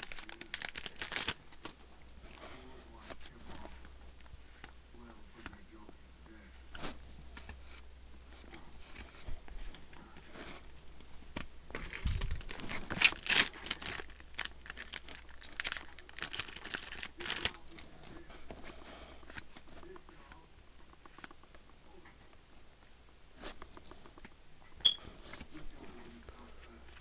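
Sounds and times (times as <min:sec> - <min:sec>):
foil wrapper crinkling and tearing: 0:00.0 - 0:01.8, 0:11.7 - 0:18.0.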